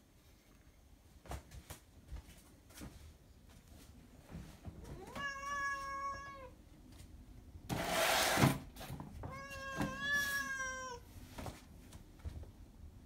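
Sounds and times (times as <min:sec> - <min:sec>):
cat meowing: 0:04.9 - 0:06.6, 0:09.2 - 0:11.1.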